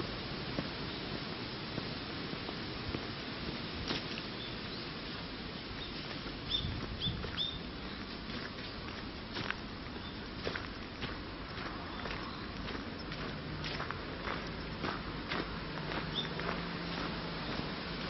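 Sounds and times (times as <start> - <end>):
outdoor hiss: 0.0 - 18.0
footsteps crunching on gravel: 0.5 - 4.3, 5.7 - 18.0
small bird chirping: 5.8 - 8.8, 9.9 - 10.8, 11.9 - 13.1, 16.1 - 16.4.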